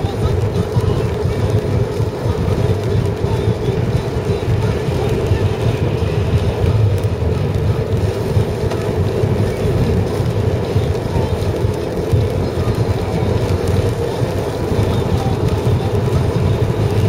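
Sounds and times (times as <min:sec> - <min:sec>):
car cabin road noise: 0:00.0 - 0:17.0.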